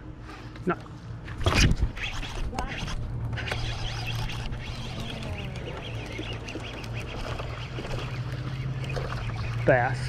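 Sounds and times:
small motor humming: 1.4 - 10.0
faint squeaky calls: 2.0 - 10.0.

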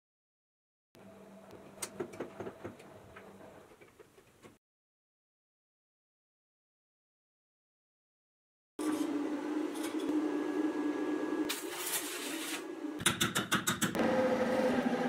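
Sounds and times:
arc welding crackling: 11.5 - 12.6.

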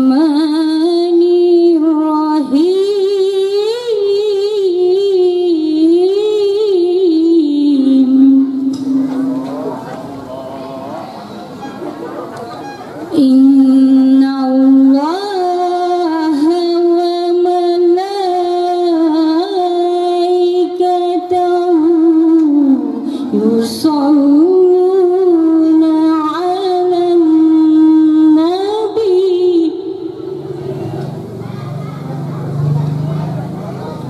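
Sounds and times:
woman singing devotional song: 0.0 - 9.0, 13.1 - 30.6.

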